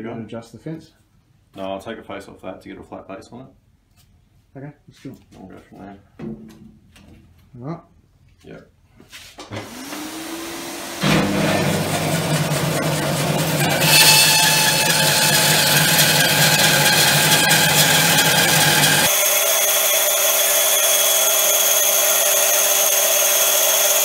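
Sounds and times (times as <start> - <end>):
shop vacuum humming: 9.5 - 24.0
bandsaw cutting log: 9.6 - 24.0.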